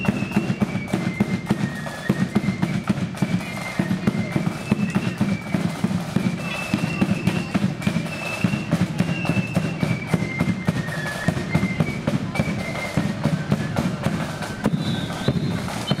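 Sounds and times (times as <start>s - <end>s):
flutes playing high melody: 0.0s - 16.0s
snare drum strokes: 0.0s - 16.0s.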